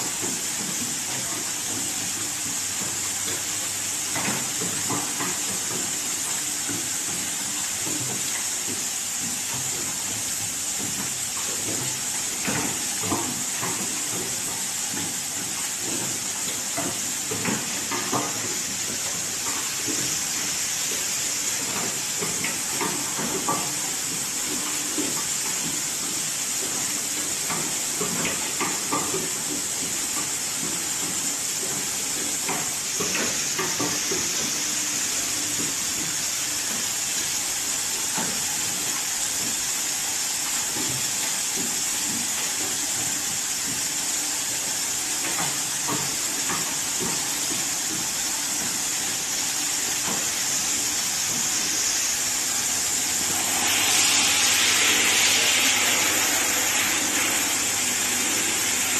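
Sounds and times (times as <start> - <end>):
machine hiss: 0.0 - 58.9
rough loud hiss: 50.0 - 58.9.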